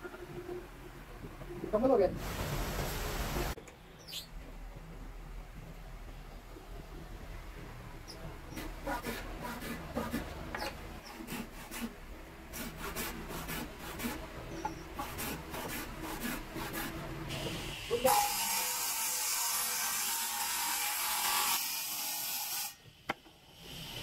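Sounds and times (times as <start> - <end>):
steady hiss: 2.2 - 4.1.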